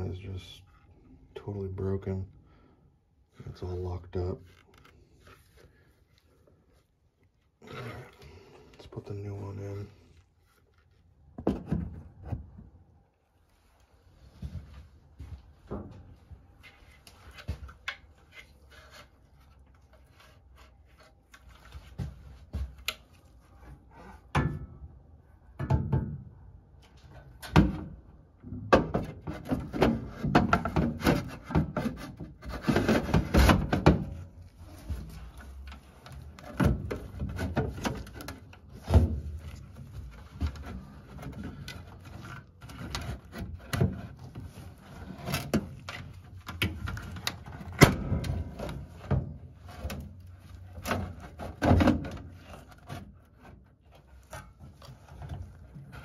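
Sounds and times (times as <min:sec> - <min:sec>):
clunks and knocks on sheet metal: 0:25.6 - 0:26.3, 0:27.5 - 0:34.2, 0:46.6 - 0:50.1, 0:50.8 - 0:52.3.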